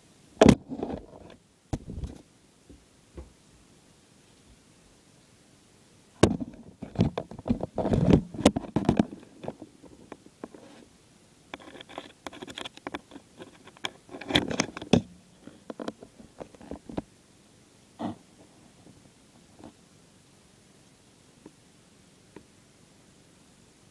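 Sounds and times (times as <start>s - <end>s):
objects being handled: 6.3s - 10.9s, 11.5s - 17.0s.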